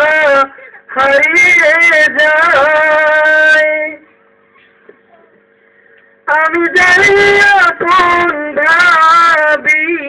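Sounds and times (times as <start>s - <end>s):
man singing melisma: 0.0s - 4.1s, 6.2s - 10.0s.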